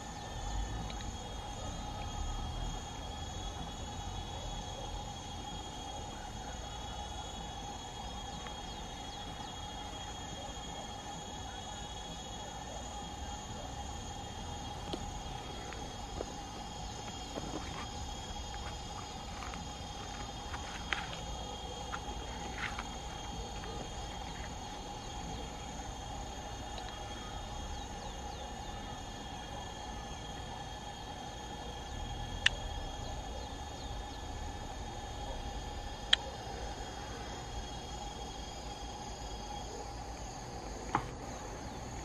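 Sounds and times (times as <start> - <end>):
insects chirring: 0.0 - 42.0.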